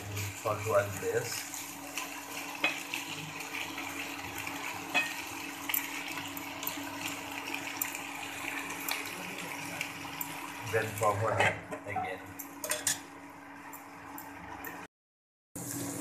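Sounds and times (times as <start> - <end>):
vegetables sizzling in a pan: 0.0 - 11.4, 15.6 - 16.0.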